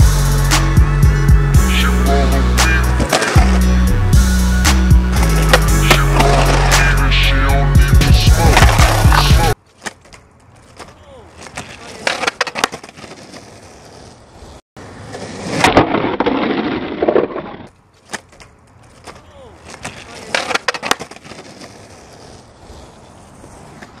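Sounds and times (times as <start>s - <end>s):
skateboard wheels rolling on asphalt: 0.0s - 24.0s
skateboard clacking on curb: 2.6s - 3.7s, 5.1s - 7.3s, 7.9s - 24.0s.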